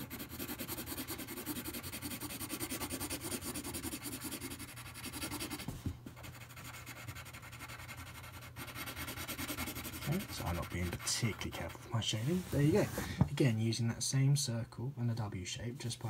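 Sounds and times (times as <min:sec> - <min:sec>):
pencil scratching on paper: 0:00.0 - 0:13.0.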